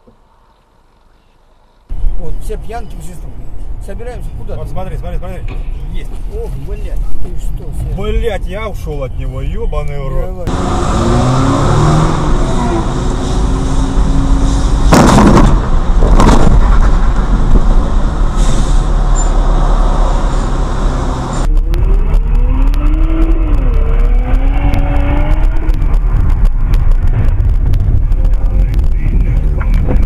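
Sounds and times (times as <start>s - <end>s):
car engine and tyre noise: 0.0s - 30.0s
short rushes of noise: 11.6s - 30.0s.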